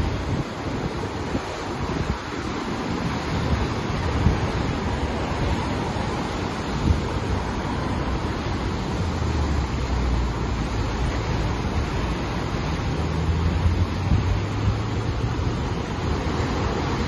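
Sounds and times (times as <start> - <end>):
surf breaking over rocks: 0.0 - 17.0
wind rumbling on microphone: 0.0 - 17.0.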